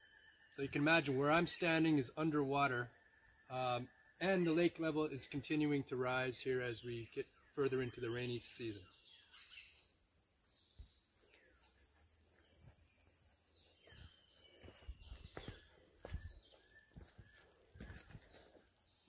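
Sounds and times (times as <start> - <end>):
bird chirps: 2.4 - 19.0
soft low thumps: 14.0 - 18.3.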